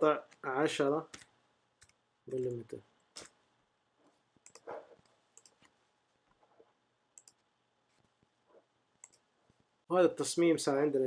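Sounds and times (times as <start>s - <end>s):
faint computer mouse clicks: 4.4s - 4.7s, 5.4s - 5.8s, 7.2s - 7.4s, 9.0s - 9.2s.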